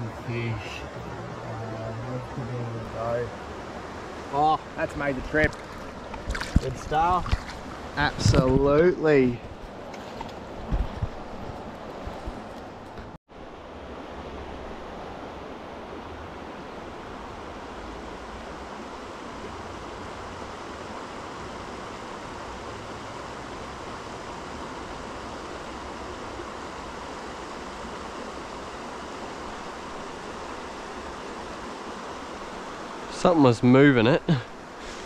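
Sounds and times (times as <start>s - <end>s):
stream water rushing: 0.0s - 35.0s.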